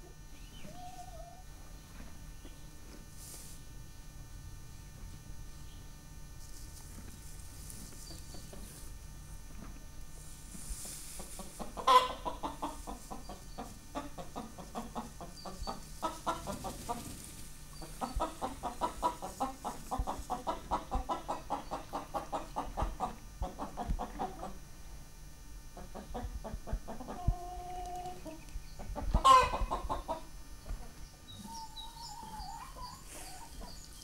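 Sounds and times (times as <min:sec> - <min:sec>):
hen clucking: 0:08.0 - 0:08.8, 0:10.8 - 0:24.7, 0:25.8 - 0:34.0.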